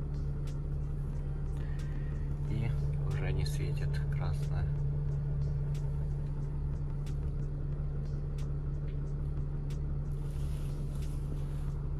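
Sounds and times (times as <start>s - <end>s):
diesel engine idling: 0.0s - 11.9s.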